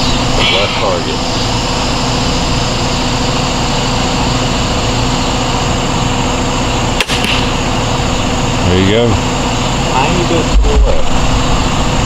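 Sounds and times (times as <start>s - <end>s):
motor droning: 0.0s - 12.0s.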